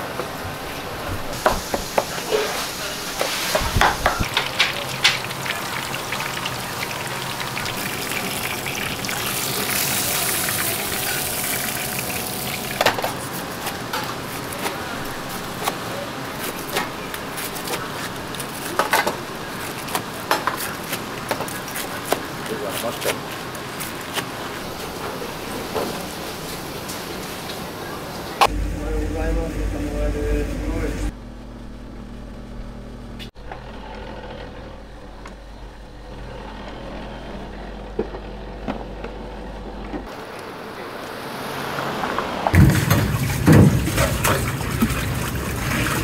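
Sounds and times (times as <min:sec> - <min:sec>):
cutlets deep-frying in hot oil: 0:03.3 - 0:12.9.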